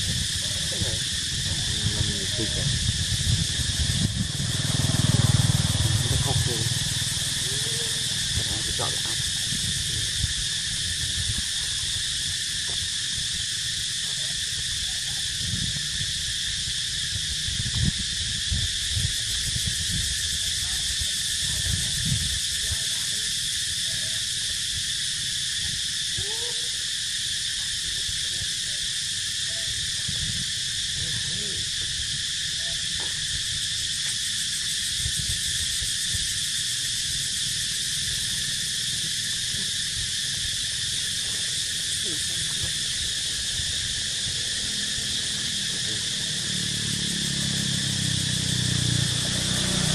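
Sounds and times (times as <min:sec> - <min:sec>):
low rumble: 0:00.0 - 0:11.4
high-pitched insect chorus: 0:00.0 - 0:49.9.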